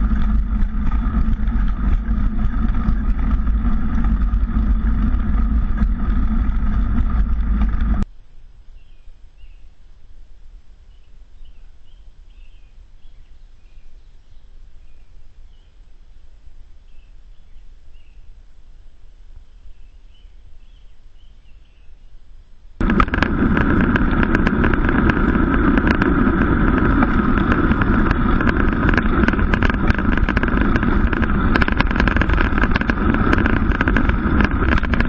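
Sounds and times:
wind and riding noise: 0.0s - 35.0s
bird chirps: 8.7s - 9.8s, 10.9s - 15.8s, 19.4s - 22.2s.

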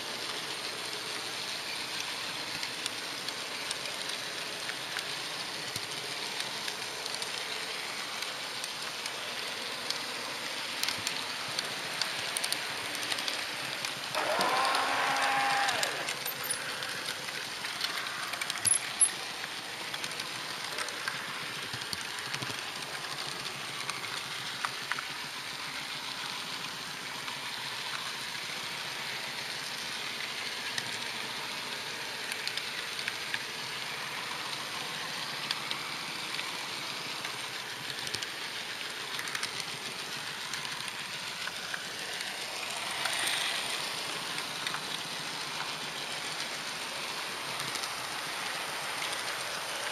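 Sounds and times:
model train running hiss: 0.0s - 49.9s
small track clicks: 10.8s - 25.3s, 32.1s - 34.6s, 35.2s - 49.9s.

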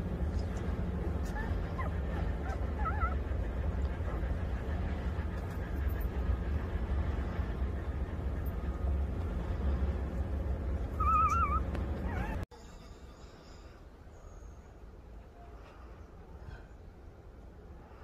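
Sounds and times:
low rumble: 0.0s - 12.5s
puppy squealing: 1.2s - 3.2s, 11.0s - 12.4s.

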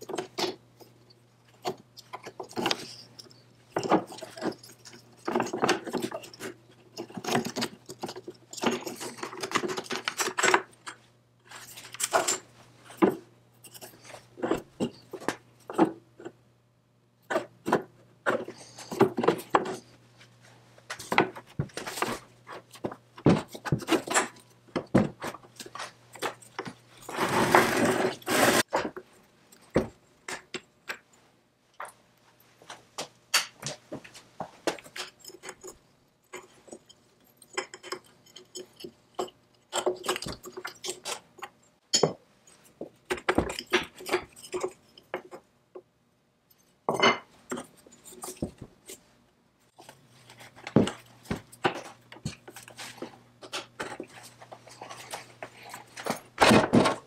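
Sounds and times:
metal parts clicking and clinking: 1.5s - 15.8s
metal scraping rub: 27.0s - 28.7s.

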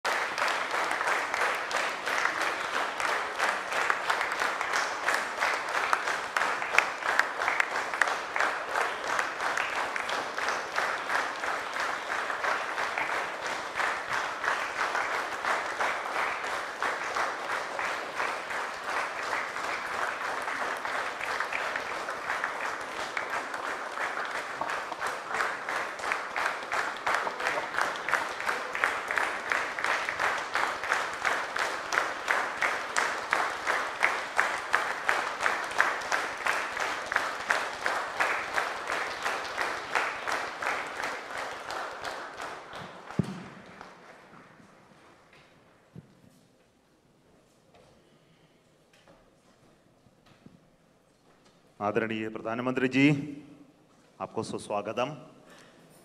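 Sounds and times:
crowd applauding: 0.0s - 44.6s.

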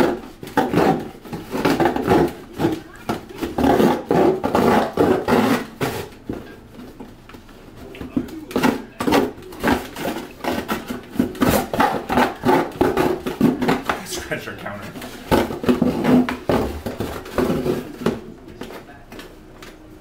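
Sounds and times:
scissors cutting cardboard: 0.0s - 6.2s, 8.5s - 14.0s, 15.2s - 18.2s.

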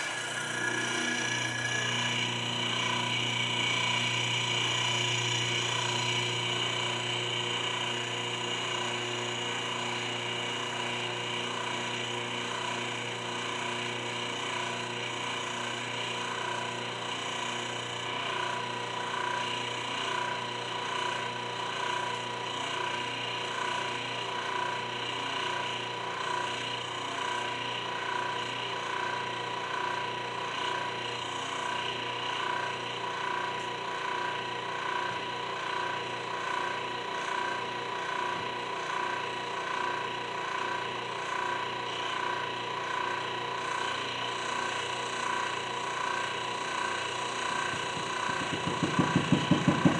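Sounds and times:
hydraulic press motor humming: 0.0s - 11.4s, 45.4s - 49.9s.

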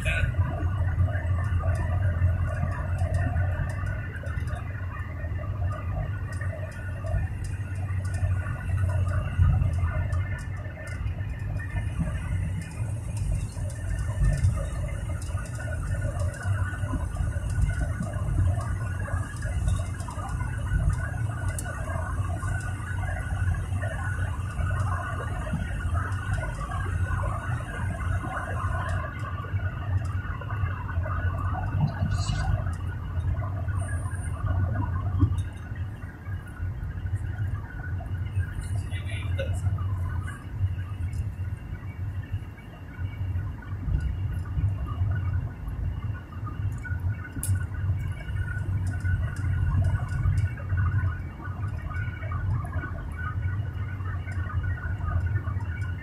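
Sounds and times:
engine and tyre rumble: 0.0s - 56.0s
faint ticks: 5.6s - 27.6s, 46.6s - 52.8s.

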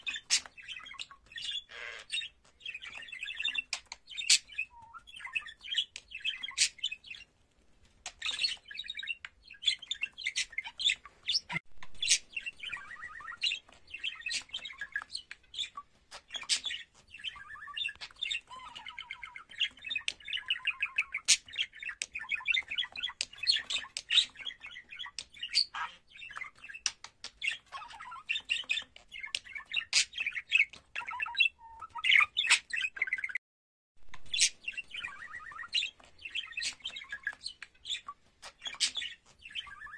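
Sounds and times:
budgerigar warbling: 1.4s - 2.3s.

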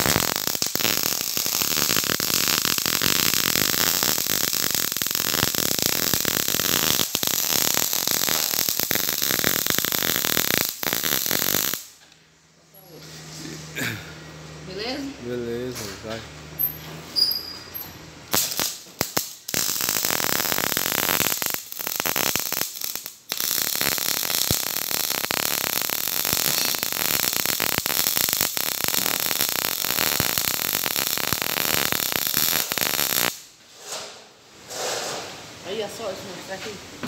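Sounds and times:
welding arc crackling: 0.0s - 12.0s, 18.2s - 33.5s.

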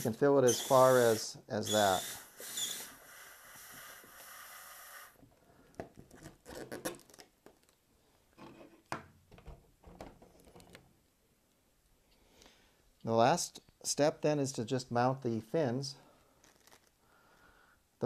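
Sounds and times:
helium hissing from nozzle: 0.0s - 5.2s.

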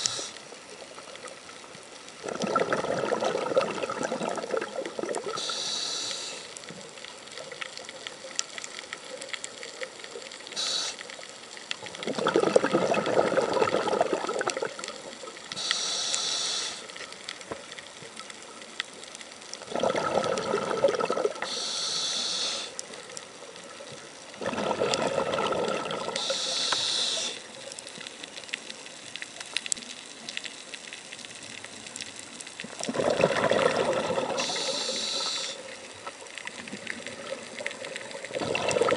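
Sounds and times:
exhaled bubbles burbling: 2.2s - 5.4s, 11.9s - 15.0s, 19.6s - 21.5s, 24.3s - 26.2s, 32.7s - 34.8s, 36.5s - 38.9s
air hissing through regulator: 5.4s - 6.5s, 10.6s - 11.0s, 15.6s - 16.9s, 21.4s - 22.8s, 26.2s - 27.4s, 34.4s - 35.6s.

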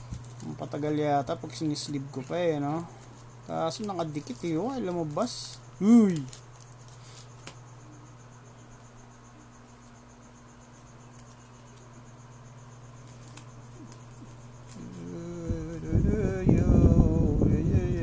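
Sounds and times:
steady low hum: 0.0s - 18.0s
high-pitched pulsing chirr: 13.6s - 18.0s.

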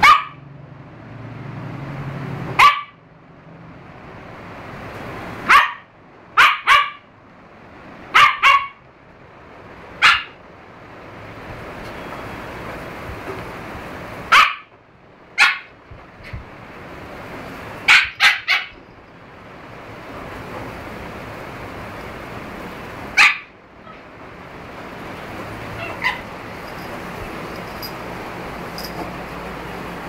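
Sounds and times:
puppies barking sharply: 0.0s - 0.4s, 2.5s - 3.0s, 5.4s - 7.1s, 8.1s - 8.9s, 9.9s - 10.4s, 14.2s - 14.8s, 15.4s - 15.8s, 17.7s - 18.8s, 23.1s - 24.0s, 25.5s - 29.3s
puppies play-fighting: 25.4s - 29.5s.

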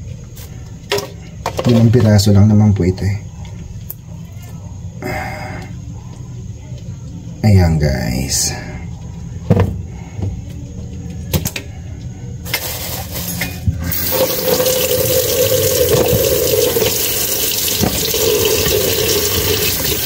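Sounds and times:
water running into sink: 13.8s - 20.0s.

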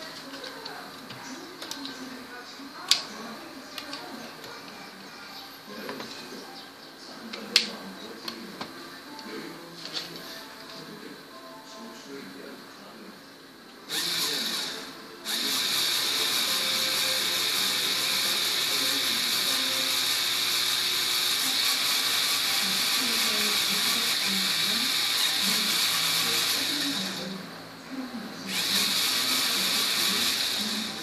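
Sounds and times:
toy car motor gear whir: 13.9s - 27.3s, 28.5s - 31.0s.

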